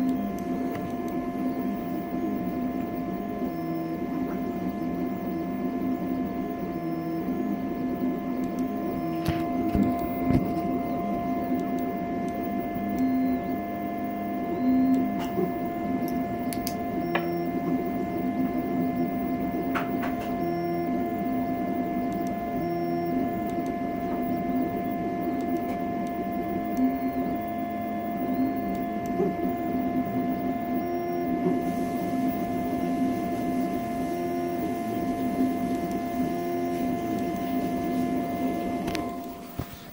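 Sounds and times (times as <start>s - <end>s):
printer ticks: 0.0s - 1.7s, 6.2s - 13.6s, 14.6s - 31.6s, 33.9s - 37.8s
fan hum: 0.0s - 39.9s
stepper motors whining: 0.0s - 39.9s.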